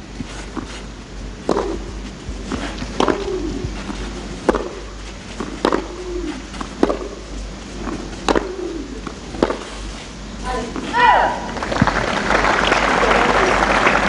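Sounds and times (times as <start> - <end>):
racket striking tennis ball: 1.4 - 10.0.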